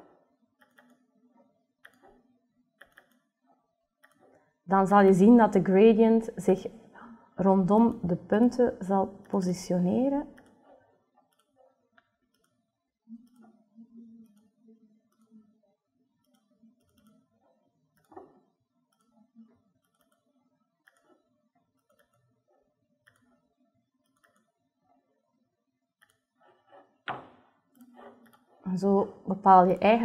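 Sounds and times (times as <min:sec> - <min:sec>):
knock: 0:27.1 - 0:27.4.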